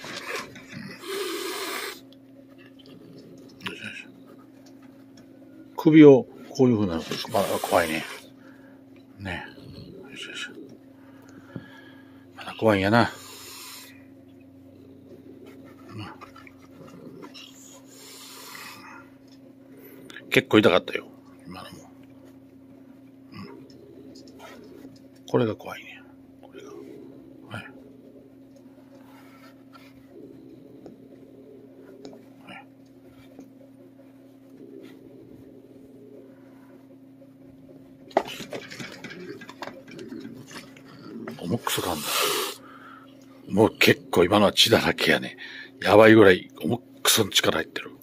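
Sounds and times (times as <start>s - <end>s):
cat hissing: 0.0s - 2.1s, 7.0s - 8.4s, 13.1s - 14.1s, 15.3s - 19.1s, 38.2s - 43.0s
low hum: 0.0s - 48.0s
hand stroking cat fur: 7.0s - 8.2s.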